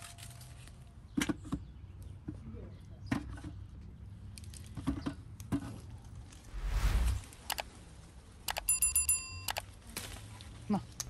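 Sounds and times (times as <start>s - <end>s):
rustling whoosh: 6.3s - 7.8s.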